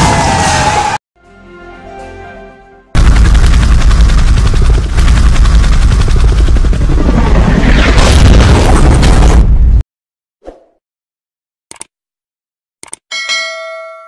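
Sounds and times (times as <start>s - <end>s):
helicopter rotor chopping: 3.0s - 8.0s
heavy low rumble: 3.0s - 9.8s
helicopter crashing and exploding: 3.0s - 9.8s.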